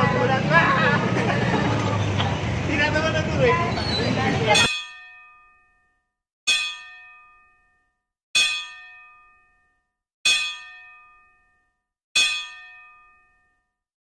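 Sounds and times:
metallic bell chime: 0:04.6 - 0:13.7.

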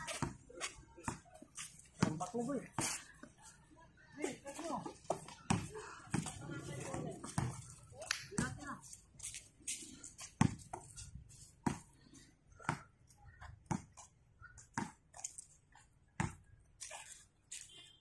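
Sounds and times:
light scuffs and clicks: 0:07.6 - 0:11.6, 0:16.6 - 0:18.0.

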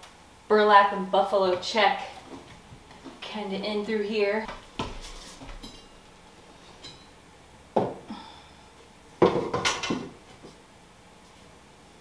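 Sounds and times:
decorations knocking and clinking: 0:09.2 - 0:10.2.

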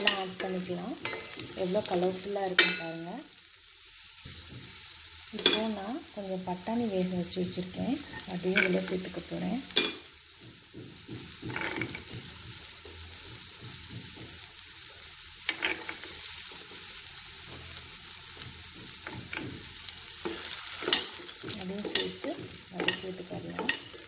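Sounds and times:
vegetables sizzling in oil: 0:00.0 - 0:24.0
spatula scraping pan: 0:15.4 - 0:24.0.

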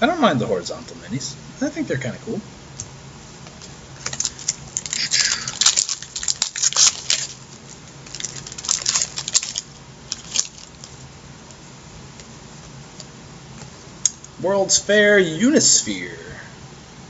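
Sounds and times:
papery crackling and rustling: 0:03.3 - 0:13.8.

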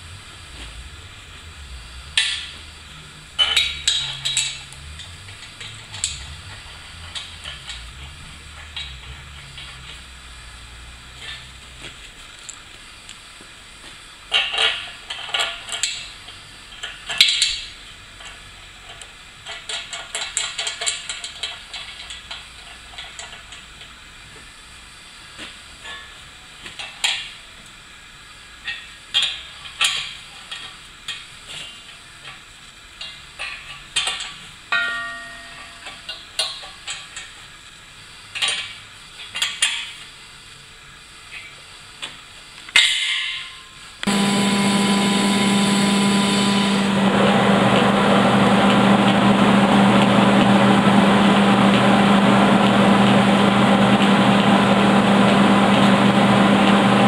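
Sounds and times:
metallic ringing note: 0:43.5 - 0:51.8.

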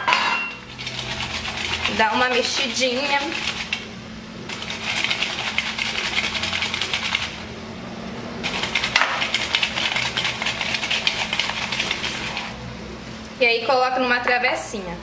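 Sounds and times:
dough balls rattling in a bowl: 0:00.7 - 0:03.9, 0:04.5 - 0:07.4, 0:08.4 - 0:12.6.

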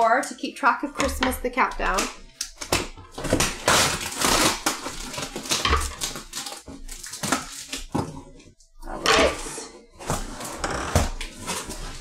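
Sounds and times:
cardboard packaging rustling: 0:01.8 - 0:08.6, 0:09.2 - 0:12.0.

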